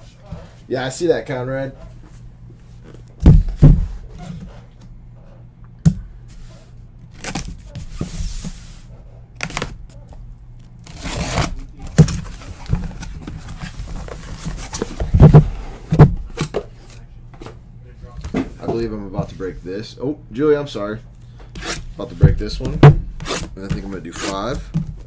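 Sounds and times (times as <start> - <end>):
cardboard box thumps and knocks: 3.2 - 4.0, 14.6 - 16.6
cardboard flaps tearing and rustling: 7.1 - 8.0, 9.4 - 9.8, 10.8 - 15.3.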